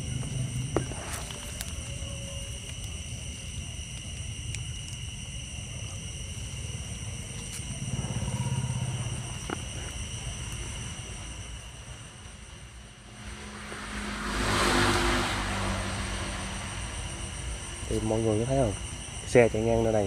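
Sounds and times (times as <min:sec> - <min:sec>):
vehicle engine passing: 0:11.8 - 0:19.1
high-pitched drone: 0:12.5 - 0:19.0.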